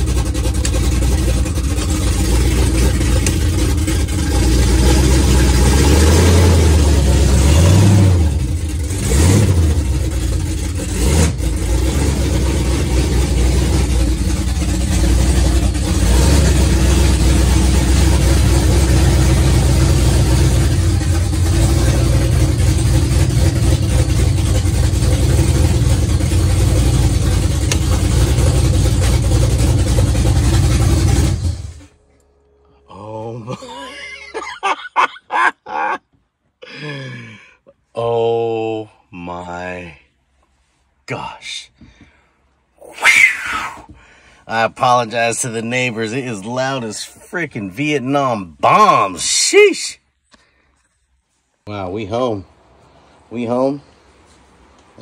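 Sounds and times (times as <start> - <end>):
loud engine running: 0.0 - 33.9.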